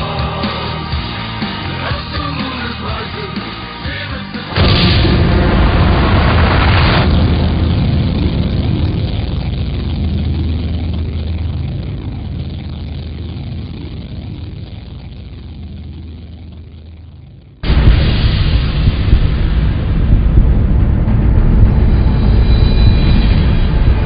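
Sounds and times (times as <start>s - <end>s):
low rumbling drone: 0.0s - 24.0s
sudden loud burst: 4.5s - 12.8s, 17.6s - 24.0s.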